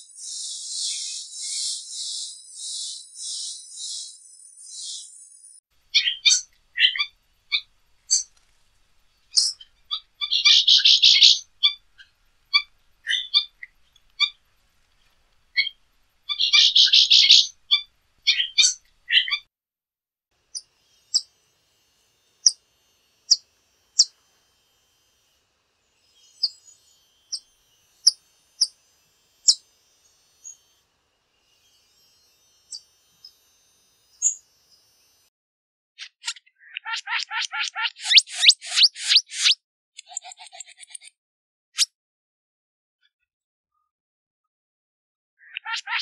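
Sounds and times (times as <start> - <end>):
bird calling and chattering: 0.0 - 4.1, 9.3 - 14.4, 15.6 - 19.4, 36.0 - 41.1, 45.4 - 46.0.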